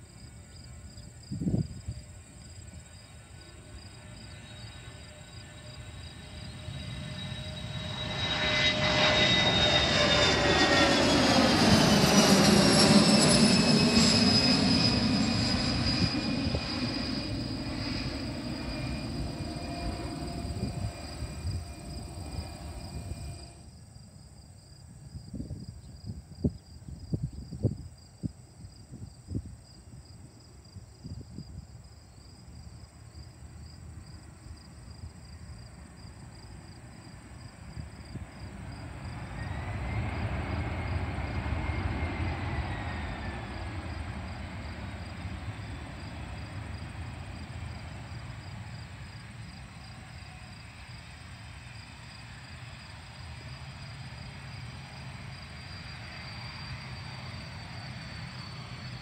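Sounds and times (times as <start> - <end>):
crickets chirping: 0.0 - 59.0
turbine whine: 0.4 - 23.7, 37.2 - 59.0
jet engines roaring: 3.1 - 23.6, 38.2 - 59.0.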